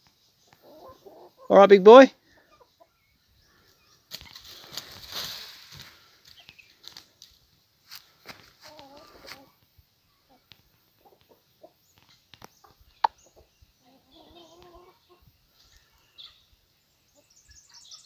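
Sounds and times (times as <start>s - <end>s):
hens clucking: 0.4s - 5.2s, 8.2s - 17.4s.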